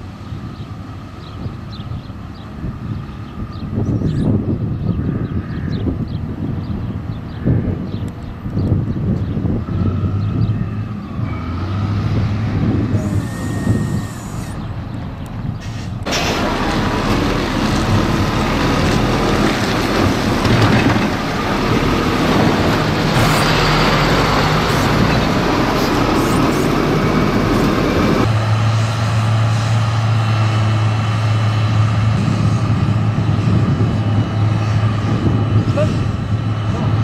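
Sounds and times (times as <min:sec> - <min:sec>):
diesel engine working hard: 0:08.0 - 0:37.0.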